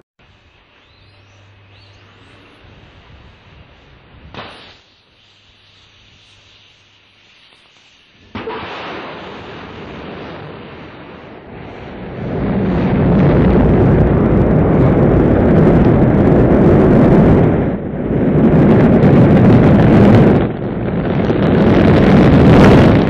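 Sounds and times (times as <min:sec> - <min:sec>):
rocket engines roaring: 0:08.2 - 0:23.0.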